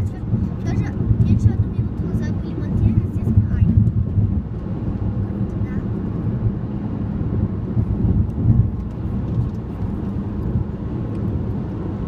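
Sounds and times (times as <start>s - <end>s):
tyre and engine rumble in car: 0.0s - 12.0s.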